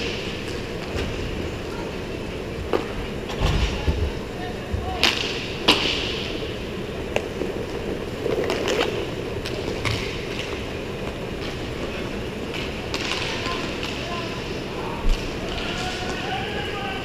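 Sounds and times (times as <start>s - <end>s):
skate wheels rolling on plastic floor: 0.0s - 16.9s
hockey sticks clacking on puck: 7.1s - 14.4s.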